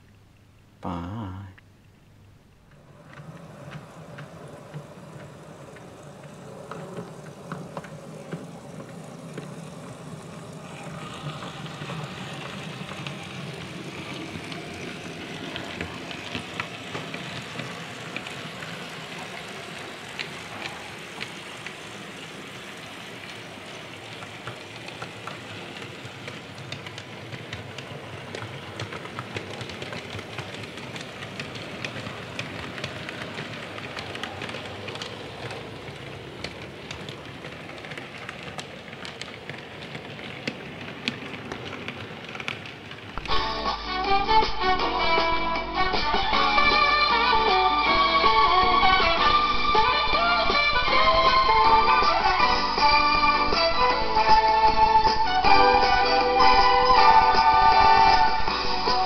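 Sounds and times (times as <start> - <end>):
wheels rattling on track: 2.7 - 59.0
model train motor hum: 2.8 - 43.8.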